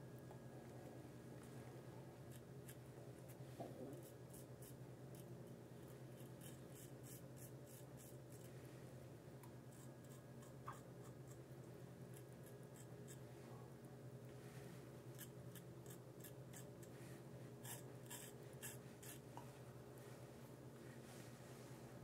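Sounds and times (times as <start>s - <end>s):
razor scraping stubble: 17.6s - 19.2s.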